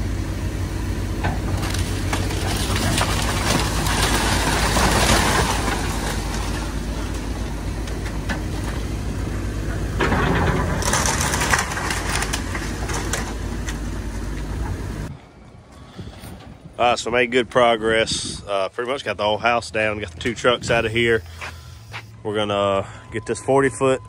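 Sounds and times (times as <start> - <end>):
excavator diesel engine running: 0.0 - 17.6
boards cracking and crashing down: 1.4 - 8.9, 9.9 - 14.3.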